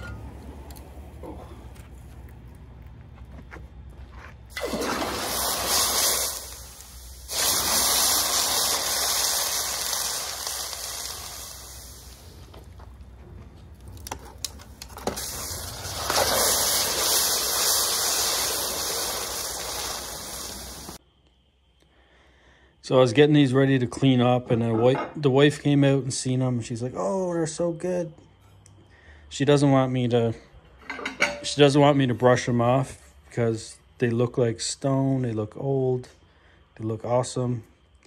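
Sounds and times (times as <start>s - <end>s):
hot metal sizzling in water: 4.5s - 12.4s, 15.0s - 21.0s.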